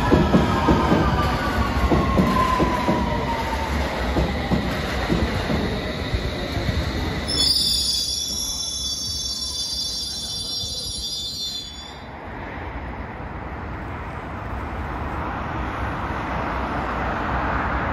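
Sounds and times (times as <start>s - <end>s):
train rumble: 0.0s - 17.9s
high shrill squeal: 7.3s - 12.1s.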